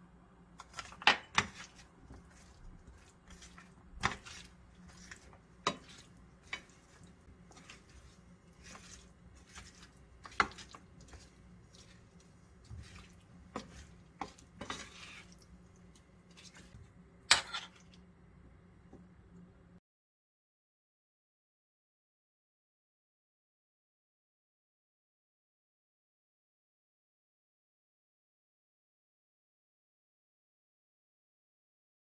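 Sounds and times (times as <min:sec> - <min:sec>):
spatula scraping metal bowl: 0:00.6 - 0:15.5
wet salad stirring: 0:00.6 - 0:18.0.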